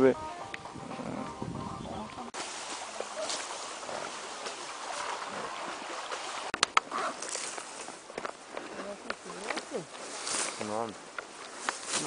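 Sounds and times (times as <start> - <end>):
grass rustling and swishing: 2.4 - 12.0.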